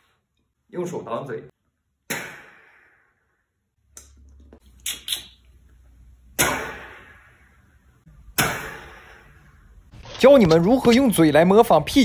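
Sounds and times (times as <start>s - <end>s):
mouth clicks: 3.9s - 5.6s
man imitating rifle shots with mouth: 6.4s - 7.3s.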